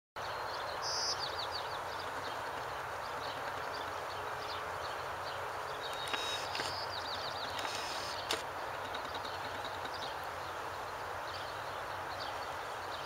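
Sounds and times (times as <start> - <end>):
bird chirping: 0.2 - 13.0
water cannons spraying: 5.9 - 6.8, 7.5 - 8.4.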